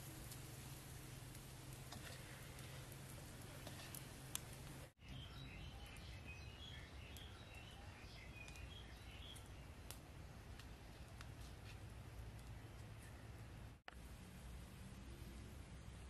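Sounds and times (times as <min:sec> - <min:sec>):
campfire crackling: 0:00.0 - 0:16.0
small birds chirping: 0:02.2 - 0:10.0, 0:12.3 - 0:13.7.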